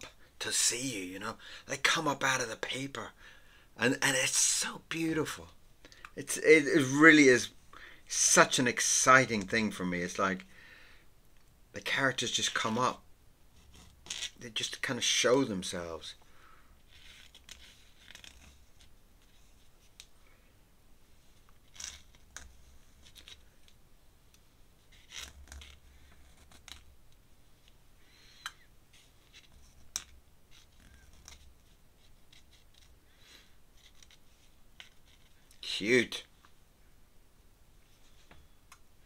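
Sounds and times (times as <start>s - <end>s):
pen nib scratching paper: 13.6s - 14.4s, 16.9s - 19.7s, 24.9s - 26.9s, 28.9s - 32.9s, 33.8s - 35.3s.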